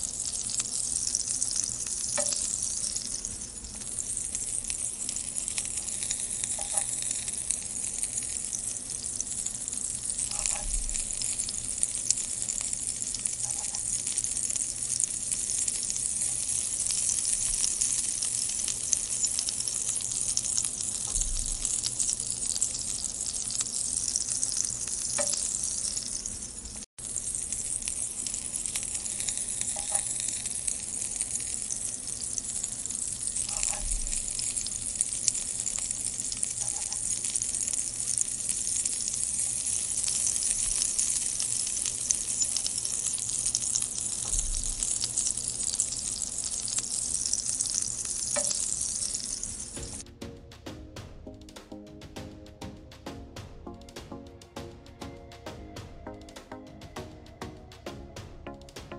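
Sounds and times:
chilli sizzling in a frying pan: 0:00.0 - 0:50.0.

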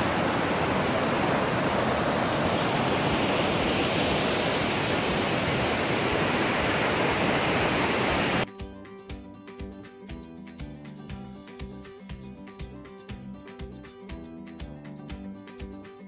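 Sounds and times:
river water rushing over dam: 0:00.0 - 0:08.4.

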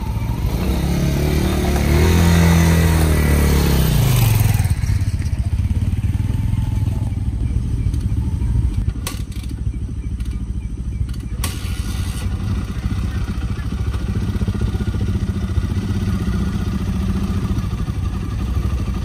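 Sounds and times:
small motorcycle engine revving: 0:00.0 - 0:19.0.

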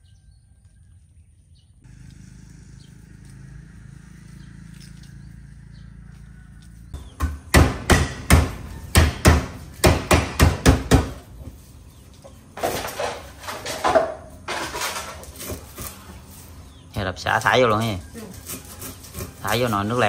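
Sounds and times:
stalks being smashed: 0:12.6 - 0:16.0.

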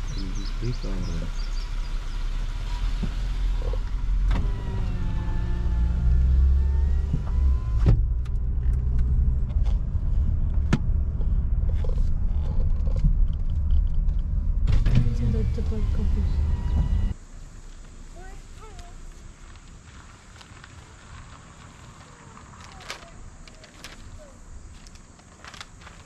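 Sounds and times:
outside hiss: 0:00.0 - 0:07.0, 0:14.6 - 0:26.0
car engine and road rumble: 0:00.0 - 0:26.0
power window motor whine: 0:02.6 - 0:08.1, 0:14.7 - 0:17.2.

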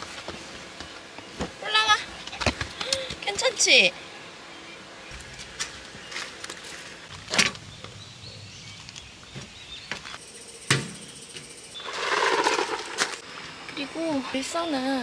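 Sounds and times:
rustling scrape: 0:11.8 - 0:13.2.

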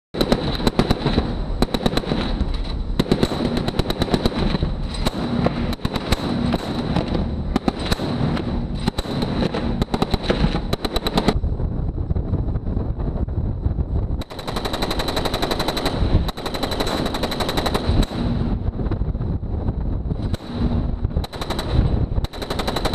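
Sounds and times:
gun firing rapid bursts: 0:00.2 - 0:11.4, 0:14.2 - 0:18.6, 0:20.2 - 0:22.9
low rumble: 0:00.2 - 0:22.9.

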